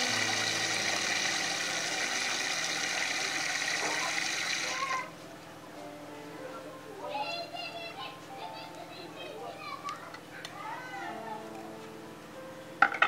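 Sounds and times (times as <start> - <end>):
mechanical whining noise: 0.0 - 5.2
faint voices: 3.6 - 12.4.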